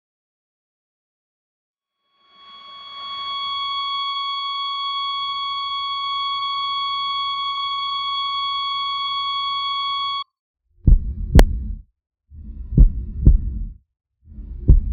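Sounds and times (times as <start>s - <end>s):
continuous electronic beep: 2.3s - 10.3s.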